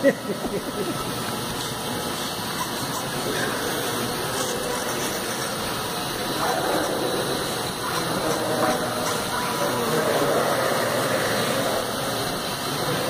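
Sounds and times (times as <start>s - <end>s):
faint motor whine: 0.0s - 13.0s.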